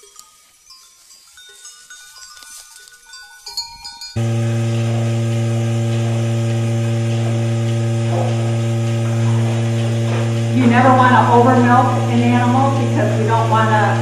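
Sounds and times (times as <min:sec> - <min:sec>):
goat bells clinking: 0:00.0 - 0:06.2
milking machine humming: 0:03.6 - 0:14.0.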